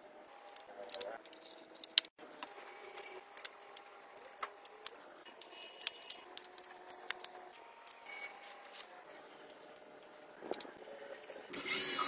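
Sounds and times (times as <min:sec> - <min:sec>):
plastic plugs clicking and rattling: 0:02.9 - 0:08.0.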